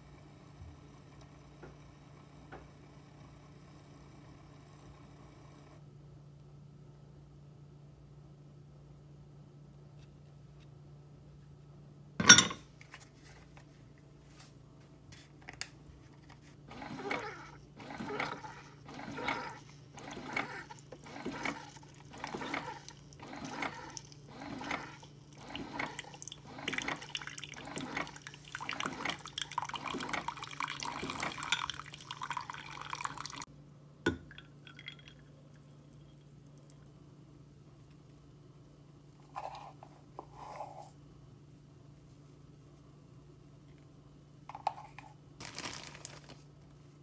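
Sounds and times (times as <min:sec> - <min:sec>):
coffee pouring onto ice: 0:19.4 - 0:33.4.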